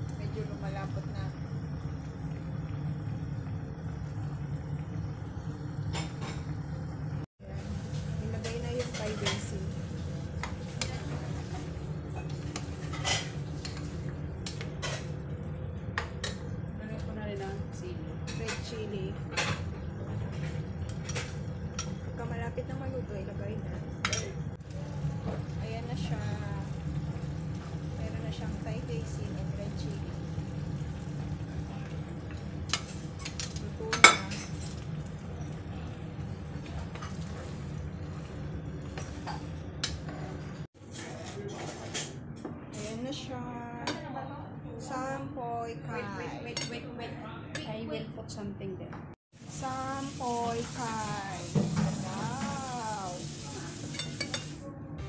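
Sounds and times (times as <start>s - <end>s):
utensil stirring food in pan: 7.7s - 15.2s, 24.1s - 40.7s, 49.3s - 54.6s
metal utensil clinking on pot: 32.7s - 34.8s.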